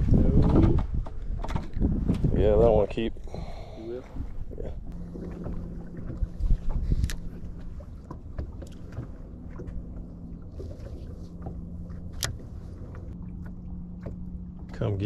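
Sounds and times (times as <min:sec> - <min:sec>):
water noise: 0:00.0 - 0:15.0
wind: 0:00.0 - 0:15.0
low electric motor hum: 0:04.3 - 0:15.0.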